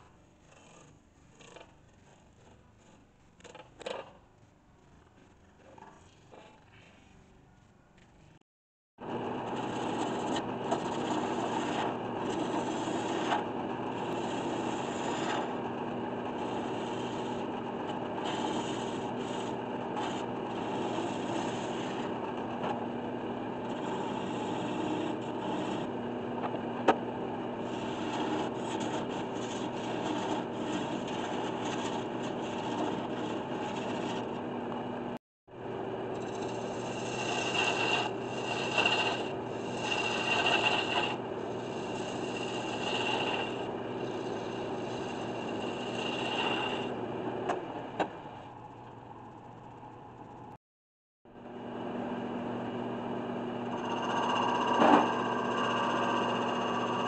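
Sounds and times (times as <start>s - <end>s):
lathe gouge scraping wood: 9.1s - 34.5s, 36.1s - 47.0s, 53.7s - 57.0s.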